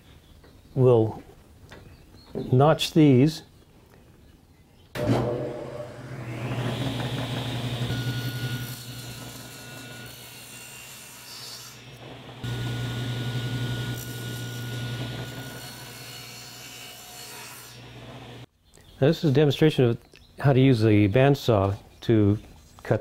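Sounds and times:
table saw cutting wood: 0:05.0 - 0:18.5
table saw humming: 0:05.0 - 0:18.5.

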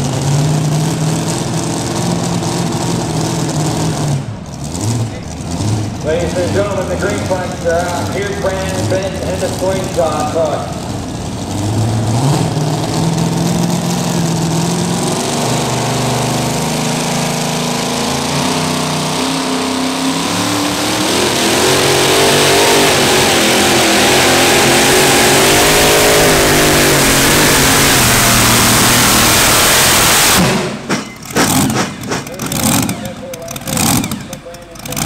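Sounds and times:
truck engine revving: 0:00.0 - 0:35.0
tyres spinning: 0:23.5 - 0:35.0.

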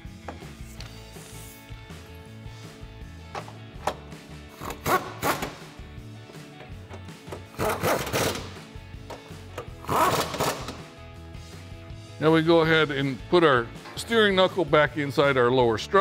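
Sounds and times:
background music: 0:00.0 - 0:16.0
hand ratchet clicking: 0:09.1 - 0:10.8.

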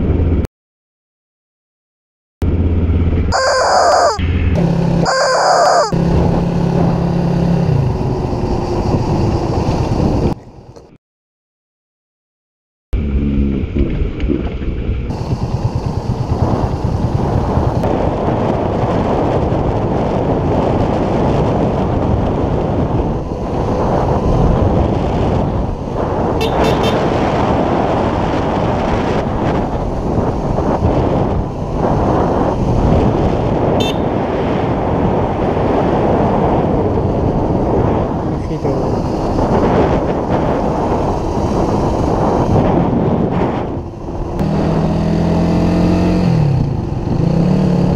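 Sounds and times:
motorcycle engine running: 0:02.4 - 0:10.8, 0:13.0 - 0:34.2, 0:34.8 - 0:47.9
wind noise on microphone: 0:03.3 - 0:11.0, 0:13.2 - 0:47.9
high-pitched chirps: 0:03.4 - 0:04.2, 0:05.1 - 0:06.0.

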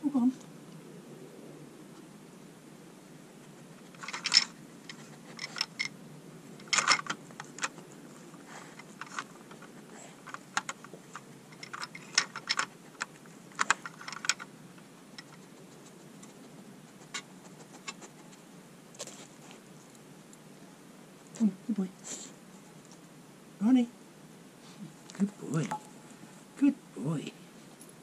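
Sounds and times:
hard plastic clicking and clattering: 0:06.6 - 0:07.8, 0:08.7 - 0:14.5.

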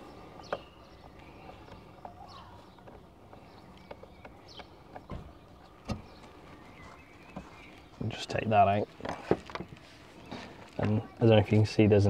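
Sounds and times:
small bird chirping: 0:00.0 - 0:08.9.

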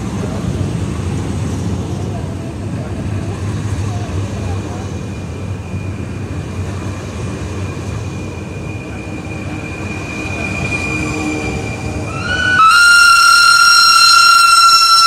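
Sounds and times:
train wheels rumbling on rail: 0:00.0 - 0:15.0
high wheel squeal: 0:04.7 - 0:15.0.

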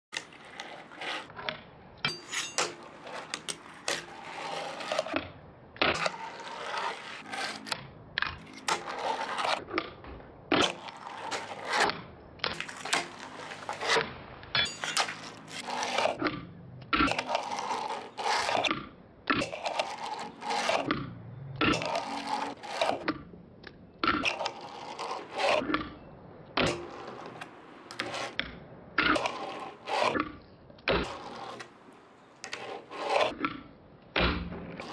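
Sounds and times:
fingerboard wheels rolling on wood: 0:00.1 - 0:14.1, 0:14.8 - 0:34.9
fingerboard grinding on metal rail: 0:00.2 - 0:01.5, 0:02.1 - 0:09.8, 0:10.5 - 0:14.0, 0:14.6 - 0:16.4, 0:17.0 - 0:23.2, 0:24.0 - 0:25.9, 0:26.6 - 0:33.6, 0:34.5 - 0:34.9.

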